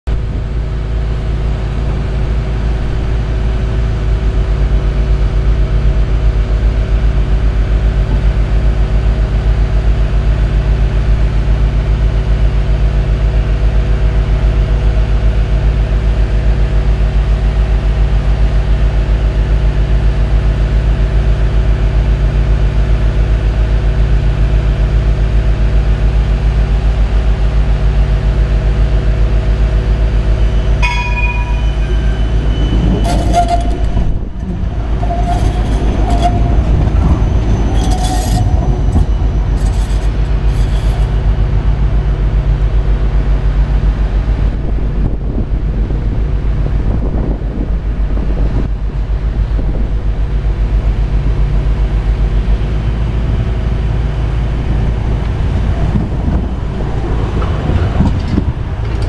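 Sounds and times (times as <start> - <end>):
engine humming: 27.8 - 44.5, 51.7 - 59.0.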